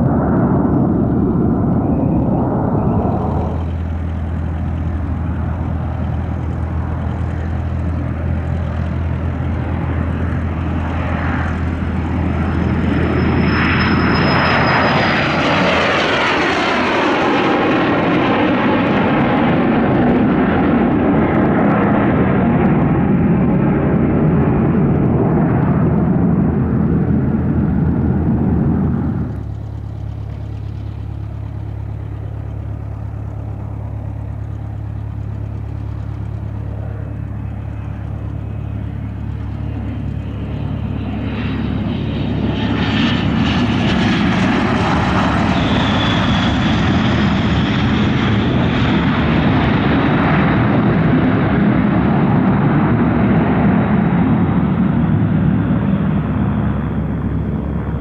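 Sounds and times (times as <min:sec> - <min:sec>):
departing jet engine noise: 0:00.0 - 0:58.0
high turbine whine: 0:00.0 - 0:58.0
landing jet engines roaring: 0:00.0 - 0:58.0.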